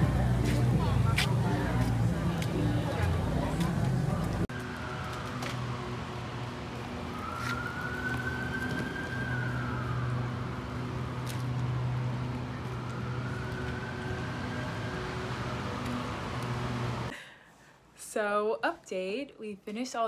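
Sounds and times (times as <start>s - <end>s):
siren wailing: 4.5s - 17.1s.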